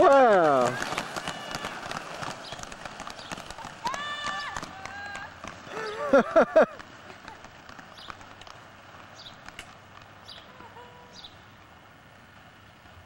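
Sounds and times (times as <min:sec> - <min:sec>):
inline skate wheels rolling: 0:00.0 - 0:13.0
child shouting: 0:03.8 - 0:05.4.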